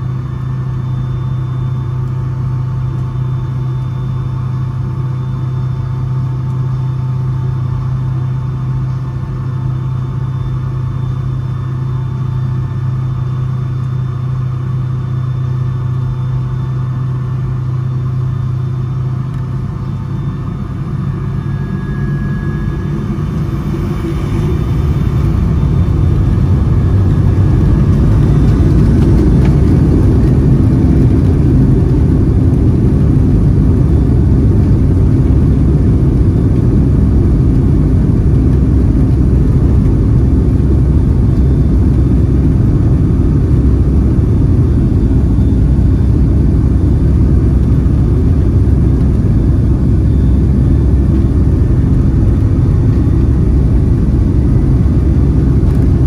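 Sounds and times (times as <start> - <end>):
jet cabin engine rumble: 0.0 - 56.0.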